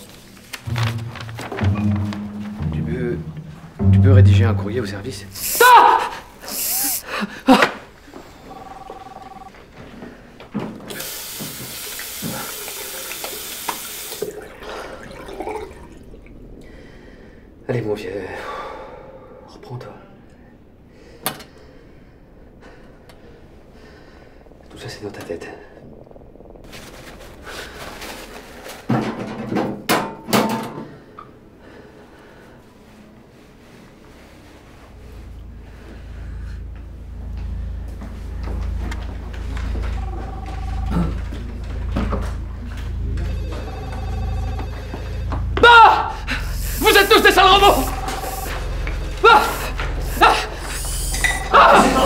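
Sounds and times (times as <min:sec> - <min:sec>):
paper towel rubbing: 0:00.0 - 0:02.4
electronic tone: 0:08.2 - 0:09.6, 0:35.0 - 0:52.0
tap running into washbasin: 0:10.9 - 0:16.0
water splashing: 0:11.0 - 0:17.4.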